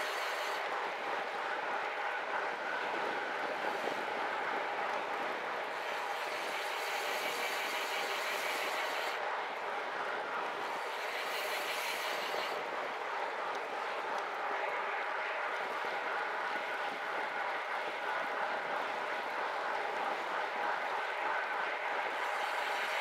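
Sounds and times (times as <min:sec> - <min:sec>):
bicycle tyres rolling on asphalt: 0:10.6 - 0:23.0.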